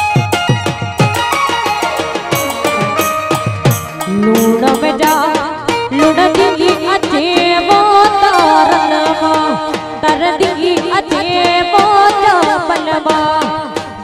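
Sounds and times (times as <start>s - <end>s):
fast percussion beat: 0.0s - 8.0s
woman singing folk song: 4.1s - 14.0s.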